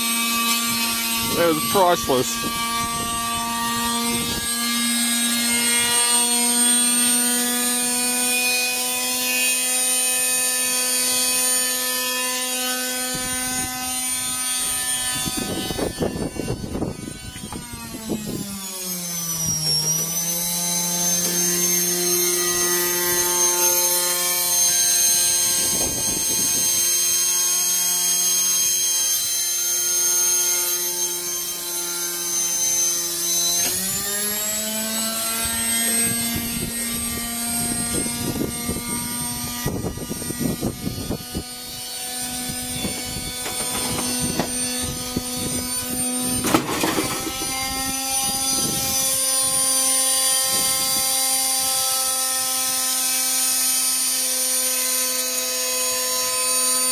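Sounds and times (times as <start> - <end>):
washing machine motor whine: 0.0 - 56.9.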